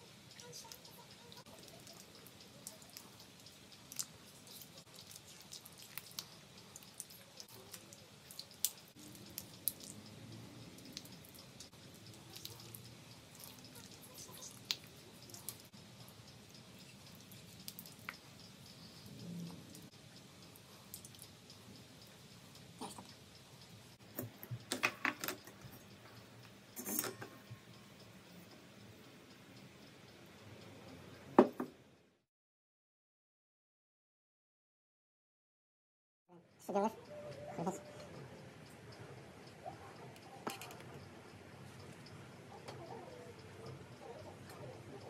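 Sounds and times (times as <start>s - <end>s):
honeycomb crackling and squelching: 0.4s - 10.0s.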